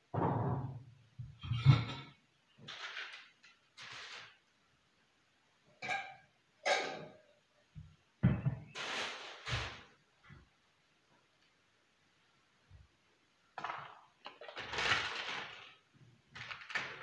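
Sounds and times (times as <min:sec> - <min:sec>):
plastic bags rustling: 0:02.7 - 0:04.4, 0:08.7 - 0:10.0, 0:13.6 - 0:17.0.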